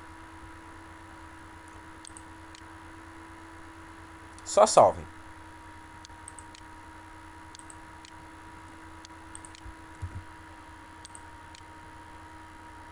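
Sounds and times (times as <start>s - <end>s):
faint hum and hiss: 0.0s - 12.9s
computer mouse clicks: 1.7s - 2.7s, 6.0s - 6.7s, 7.5s - 8.2s, 9.0s - 10.2s, 11.0s - 11.7s.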